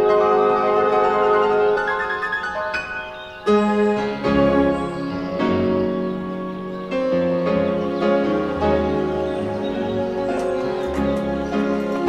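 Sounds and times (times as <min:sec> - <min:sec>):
held instrumental notes: 0:00.0 - 0:12.0.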